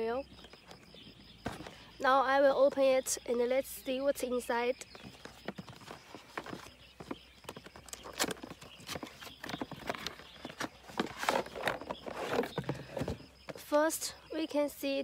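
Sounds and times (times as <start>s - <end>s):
cardboard box clicks and rustles: 5.0s - 13.2s
plastic case sliding out: 8.0s - 13.2s.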